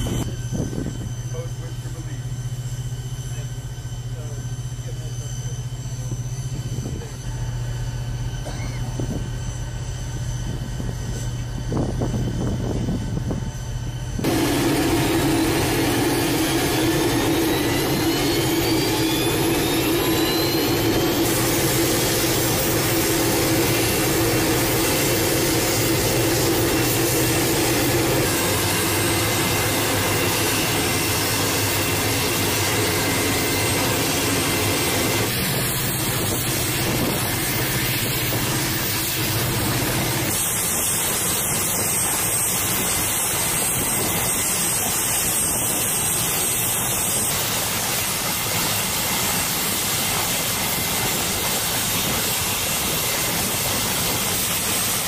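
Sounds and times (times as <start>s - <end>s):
helicopter turbine whine: 0.0s - 55.0s
rotor rushing noise: 14.2s - 55.0s.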